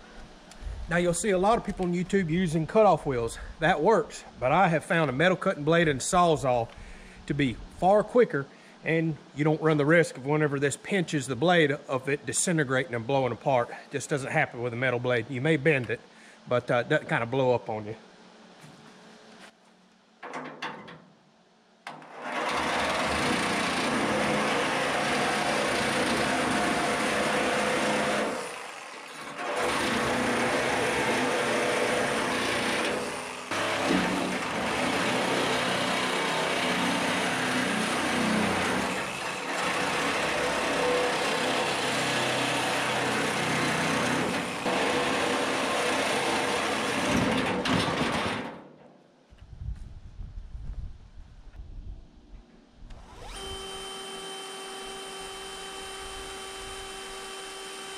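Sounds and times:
reciprocating saw cutting steel: 22.0 - 47.2, 52.9 - 57.9.

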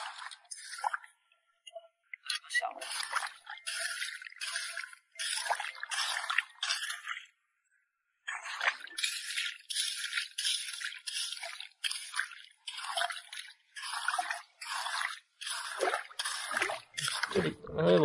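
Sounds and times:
hoe scraping wet sand in water: 0.0 - 0.9, 2.8 - 7.2, 8.3 - 17.6.

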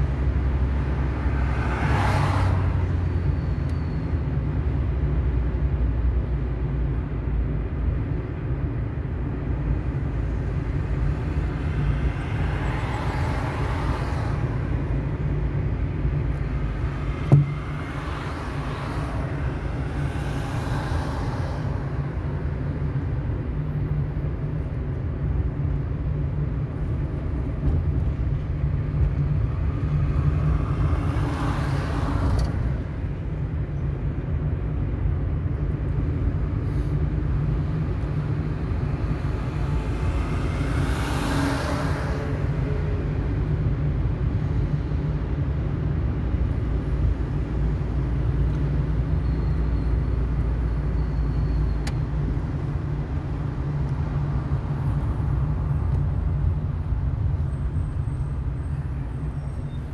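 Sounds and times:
road and engine rumble: 0.0 - 59.9
traffic passing: 0.0 - 59.9
sharp knock: 17.2 - 17.6.

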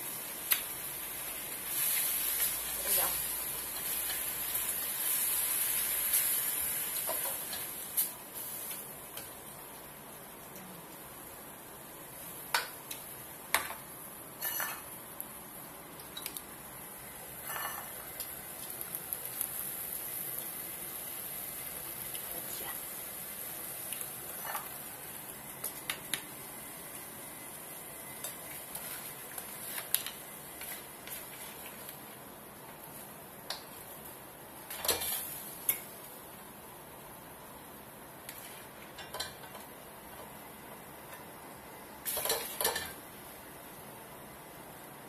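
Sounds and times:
spatula scraping a wok: 14.4 - 14.8, 17.4 - 18.0.

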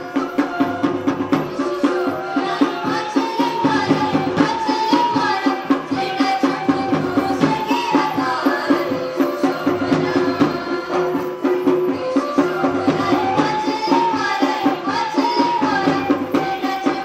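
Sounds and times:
drums beating: 0.0 - 17.0.

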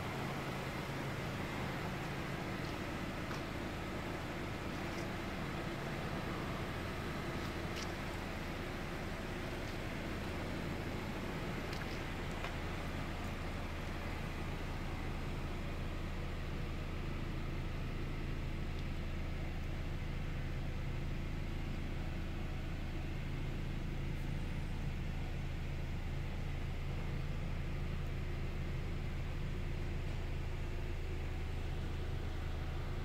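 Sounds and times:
car engine idling: 0.0 - 33.0.

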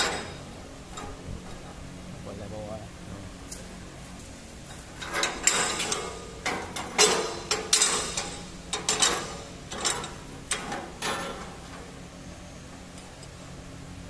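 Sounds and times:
steel plates clinking and scraping: 0.0 - 1.2, 5.0 - 11.9.

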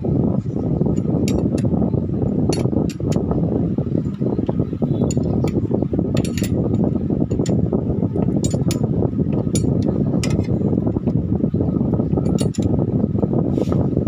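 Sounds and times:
low background rumble: 0.0 - 14.0
wrench clinking on bolts: 1.0 - 1.7, 2.5 - 3.2, 6.2 - 6.6, 7.3 - 7.6, 8.2 - 10.5, 12.2 - 12.7.

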